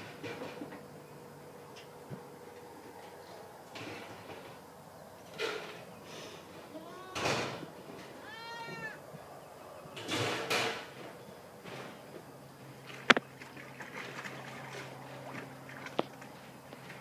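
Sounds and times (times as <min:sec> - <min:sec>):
water splashing: 0:12.7 - 0:17.0.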